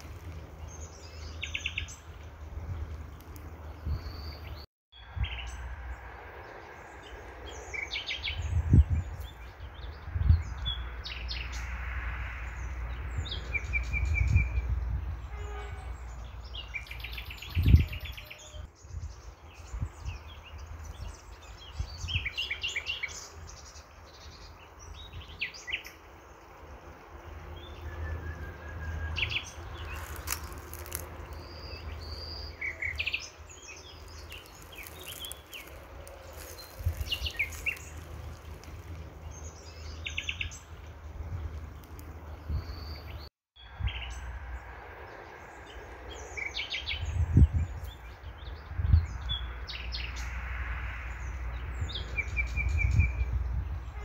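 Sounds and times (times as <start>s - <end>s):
songbirds chirping and trilling: 0.0s - 54.0s
steady outdoor hiss: 18.7s - 47.1s.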